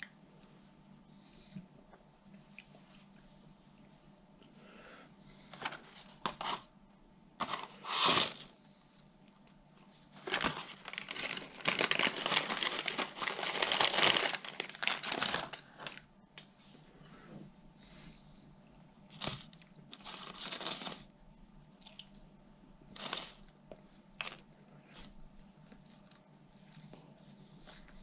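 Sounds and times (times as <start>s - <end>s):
paper bag crinkling and rustling: 7.4s - 8.5s, 10.0s - 16.1s, 19.1s - 21.1s, 23.0s - 23.4s.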